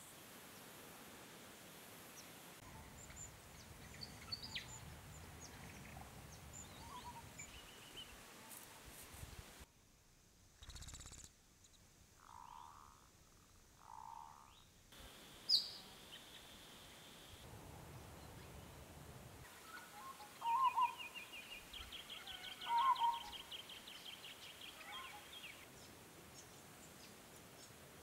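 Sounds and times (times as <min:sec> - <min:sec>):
small birds twittering: 0:02.2 - 0:08.7, 0:10.6 - 0:14.7, 0:15.4 - 0:17.5, 0:19.5 - 0:27.8
dove calling: 0:02.6 - 0:08.7, 0:19.5 - 0:23.7.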